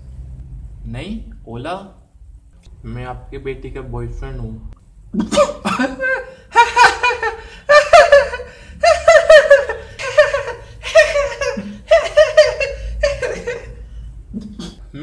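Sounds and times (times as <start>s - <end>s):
person laughing loudly: 5.2s - 15.0s.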